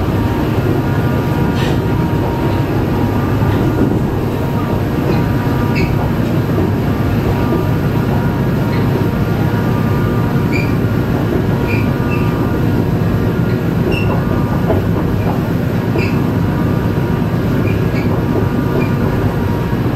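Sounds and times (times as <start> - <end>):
diesel locomotive engine drone: 0.0 - 19.9
short high squeaks: 5.7 - 6.0, 10.4 - 10.9.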